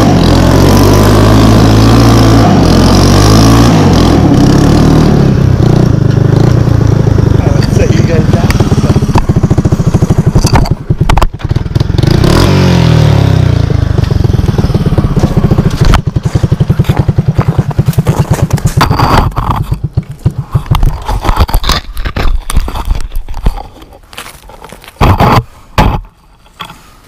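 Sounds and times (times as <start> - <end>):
single-cylinder engine running hard: 0.0 - 20.9
close knocks and scrapes: 18.0 - 27.0.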